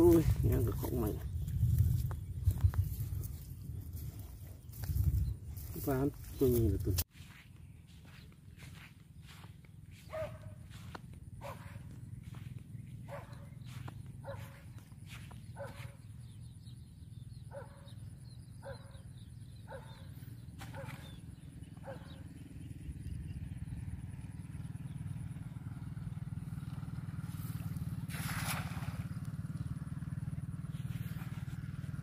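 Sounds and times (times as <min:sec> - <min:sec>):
footsteps on grass: 0:00.0 - 0:16.1
steady low hum: 0:00.0 - 0:18.6, 0:26.0 - 0:32.0
cast net swishing through air: 0:28.1 - 0:29.0.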